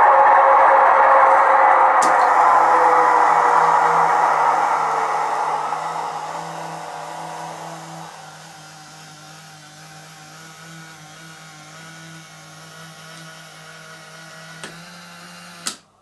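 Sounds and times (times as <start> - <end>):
steady low hum: 0.0 - 16.0
model locomotive engine whirring: 2.0 - 15.8.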